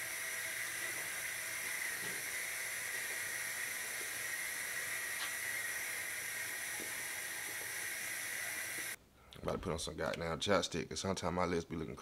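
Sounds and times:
steady hiss: 0.0s - 9.0s.

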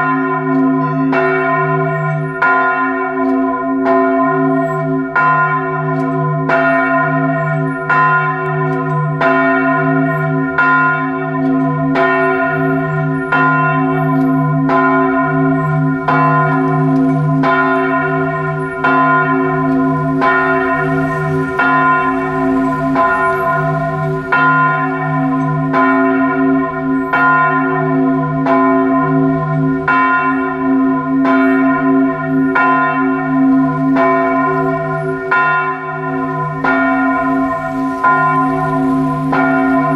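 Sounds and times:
church bells tolling: 0.0s - 39.9s.

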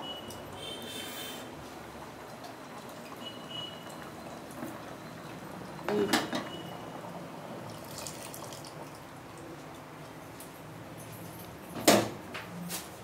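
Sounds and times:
curry bubbling in a pot: 0.1s - 10.3s.

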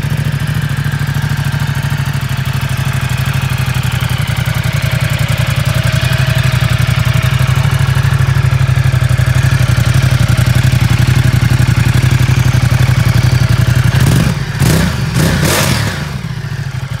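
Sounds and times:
motorcycle engine idling: 0.0s - 17.0s
engine revving bursts: 14.0s - 16.4s.

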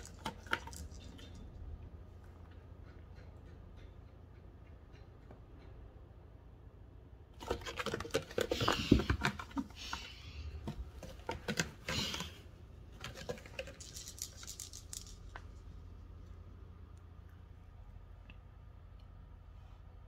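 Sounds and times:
cat clawing a scratching post: 7.4s - 12.4s.

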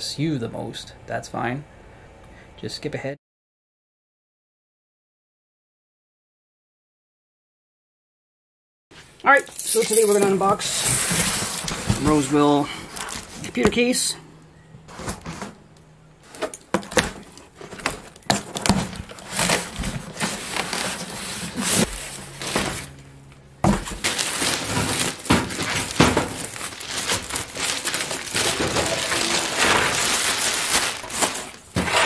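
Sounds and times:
plastic and foam crinkling: 9.0s - 14.0s, 16.2s - 32.0s.

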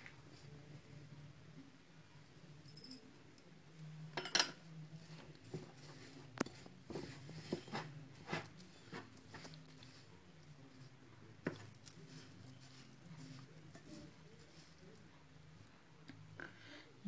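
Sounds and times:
fingers squishing dough: 5.0s - 15.5s.

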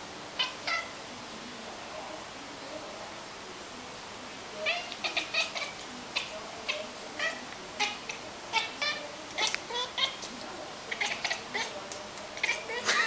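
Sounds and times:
cat chattering chirps: 0.4s - 0.9s, 4.6s - 10.3s, 10.9s - 11.8s, 12.4s - 13.0s.

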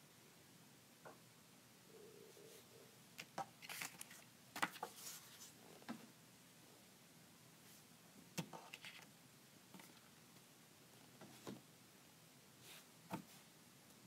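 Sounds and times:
paper cards rustling: 3.2s - 5.6s, 8.4s - 9.1s.

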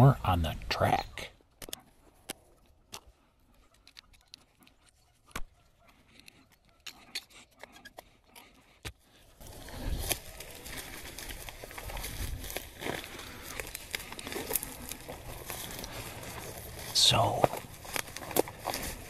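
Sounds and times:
footsteps through dry leaves: 9.4s - 19.0s.

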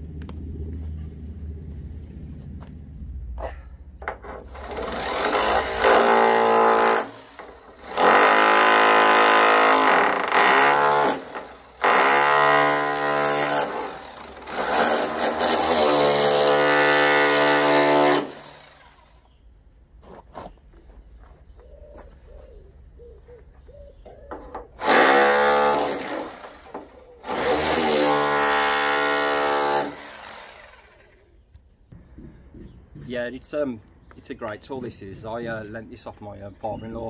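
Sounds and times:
drill chiselling metal: 4.5s - 19.2s, 24.8s - 31.1s.

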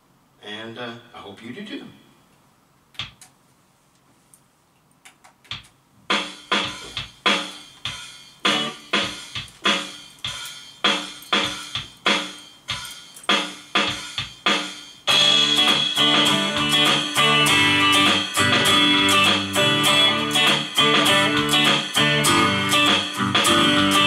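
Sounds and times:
drum machine beat with chords: 3.0s - 3.4s, 5.1s - 24.0s
electric guitar strumming: 8.5s - 9.1s, 15.1s - 24.0s.

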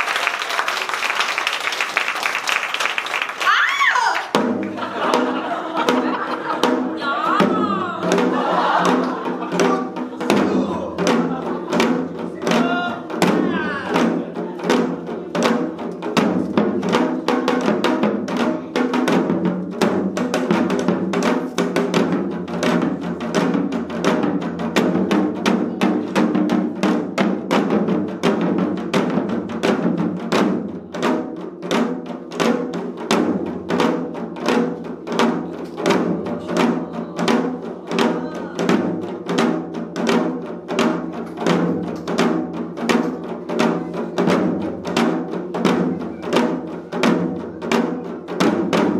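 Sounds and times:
hourglass drums played together: 3.5s - 48.9s.

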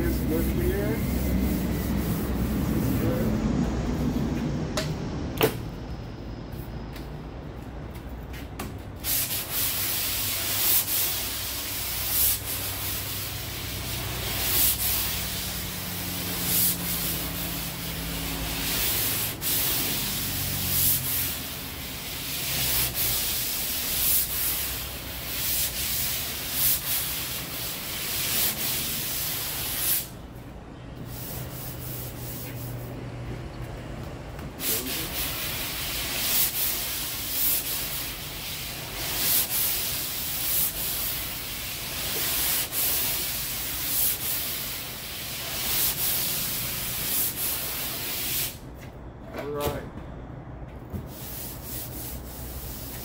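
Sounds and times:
sandpaper rasping on filler: 0.0s - 3.3s, 9.1s - 30.2s, 31.1s - 32.8s, 34.6s - 48.6s, 51.1s - 53.0s.

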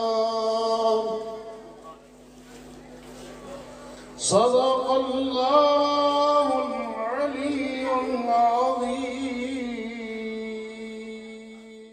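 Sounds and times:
man reciting melodically: 0.0s - 2.0s, 4.2s - 11.9s.

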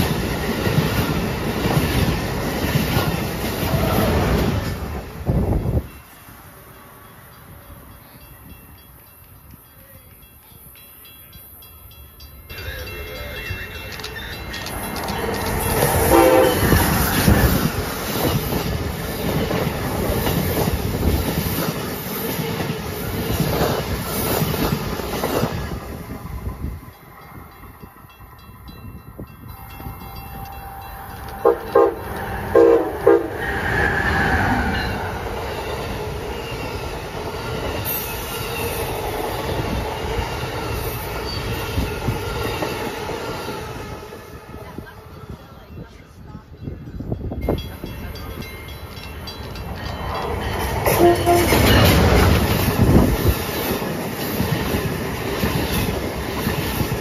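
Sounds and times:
train rushing past: 0.0s - 9.6s, 10.7s - 57.0s
short train horn blasts: 16.0s - 16.9s, 30.4s - 33.6s, 50.9s - 51.9s
train horn: 16.0s - 17.0s, 30.2s - 35.0s, 50.9s - 52.0s.

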